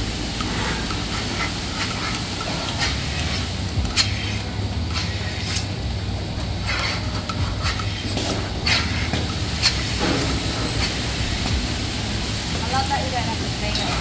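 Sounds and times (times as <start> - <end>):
milking machinery humming: 0.0 - 14.0.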